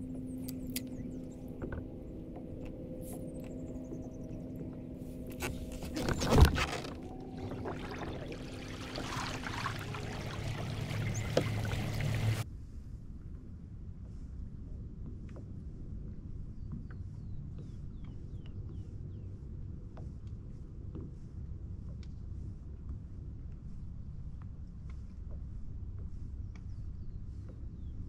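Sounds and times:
low hum: 0.0s - 12.4s
water rushing along kayak hull: 5.4s - 12.4s
bird chirps: 7.3s - 12.4s.

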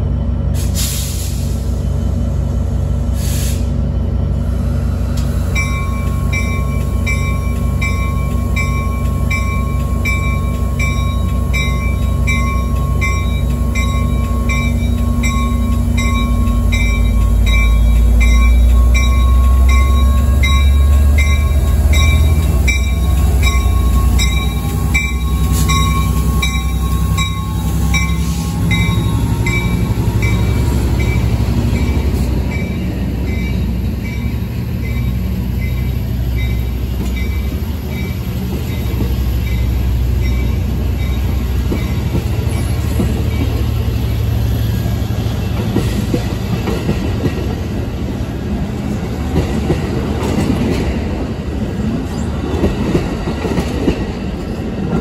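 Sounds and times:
diesel locomotive rumble: 0.0s - 55.0s
train coaches rolling on rails: 0.0s - 55.0s
bell ringing: 5.6s - 36.6s.

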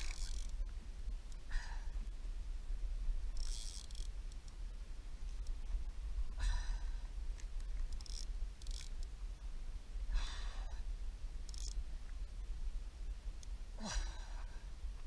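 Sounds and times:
wind rumble on microphone: 0.0s - 15.0s
person breathing heavily: 6.3s - 7.1s, 10.1s - 10.9s.

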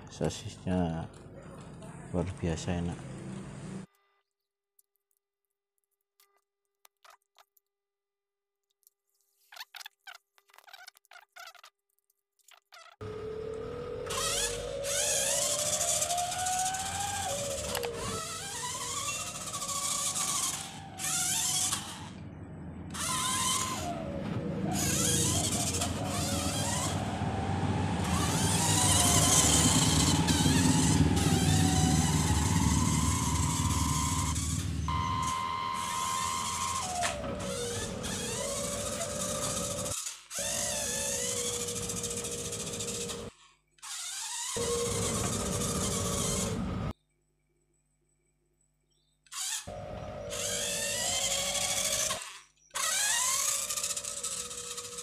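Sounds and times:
toy car electric motor whining: 12.7s - 22.3s, 22.9s - 47.0s, 49.3s - 55.0s.

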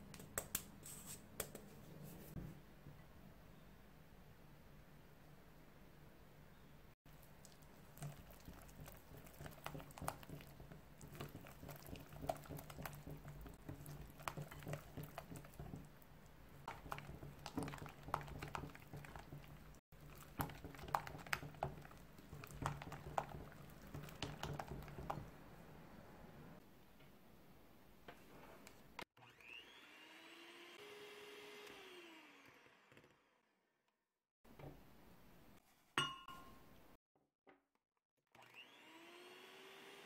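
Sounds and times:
whisk squishing wet batter: 7.1s - 25.7s.

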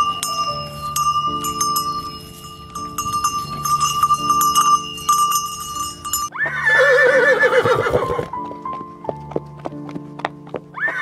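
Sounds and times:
cowbell clanking: 0.0s - 6.4s
background music: 0.0s - 11.0s
horse whinnying: 6.3s - 8.3s, 10.8s - 11.0s.

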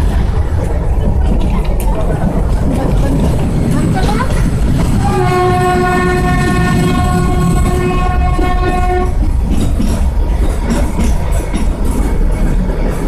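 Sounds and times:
train running rumble: 0.0s - 13.0s
toy train horn blowing: 5.0s - 9.1s.

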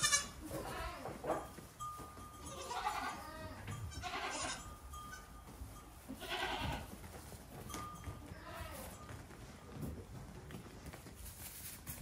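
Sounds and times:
goat kids bleating: 0.0s - 1.3s, 2.3s - 5.4s, 6.1s - 7.0s, 8.0s - 9.0s
hooves knocking on barn floor: 0.0s - 12.0s.

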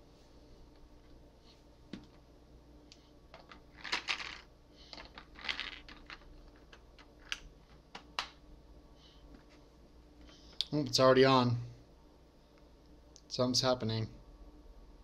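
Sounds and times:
batteries rattling in plastic compartment: 3.4s - 7.4s.

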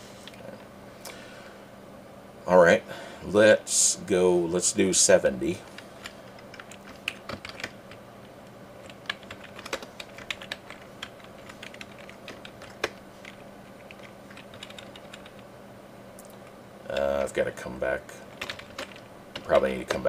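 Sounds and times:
typing on computer keyboard: 6.0s - 8.0s, 8.8s - 15.4s, 18.4s - 20.0s.

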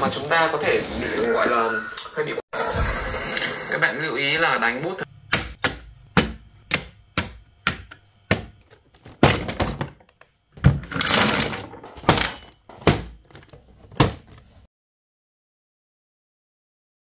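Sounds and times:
cardboard box thunks: 12.8s - 14.4s.

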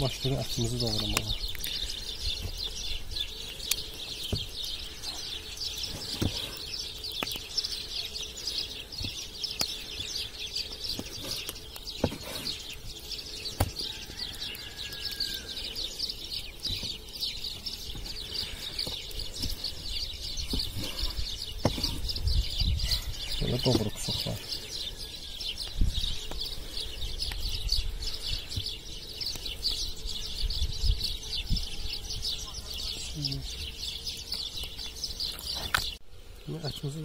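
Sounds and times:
birds chirping: 0.0s - 37.0s.

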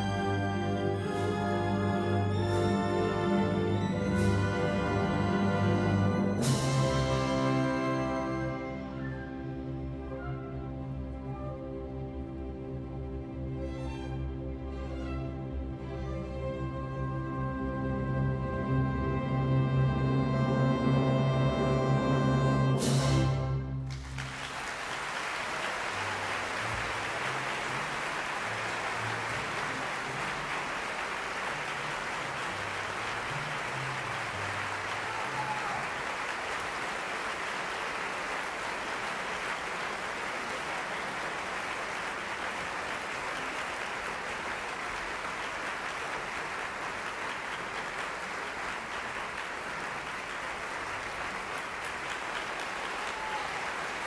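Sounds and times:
audience applauding: 23.8s - 54.0s.

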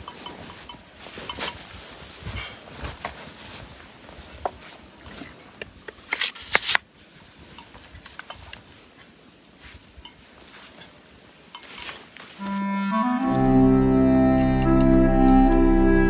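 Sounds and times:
rustles and clicks of handling: 0.0s - 8.7s
faint outdoor ambience: 0.0s - 16.0s
instrumental music with held notes: 12.4s - 16.0s.

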